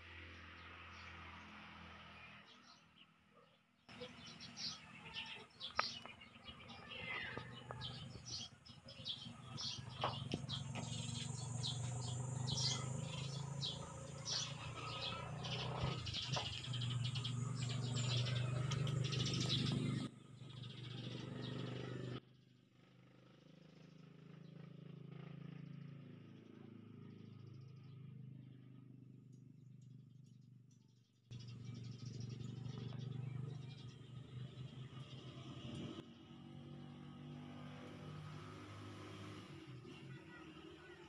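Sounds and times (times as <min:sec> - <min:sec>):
birds chirping: 0:02.5 - 0:22.2, 0:31.3 - 0:36.0.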